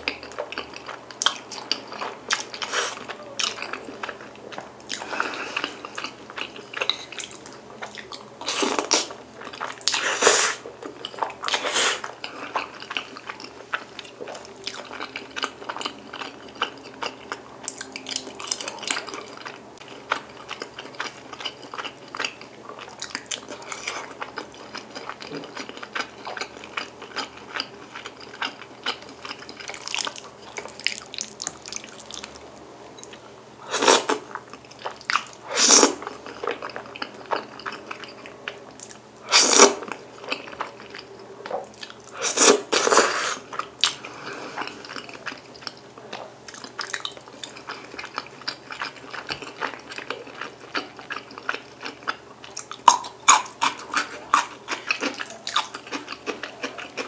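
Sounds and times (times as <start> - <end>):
wet chewing and lip smacking: 10.8 - 32.4, 43.5 - 57.0
loud noodle slurps: 35.5 - 36.0.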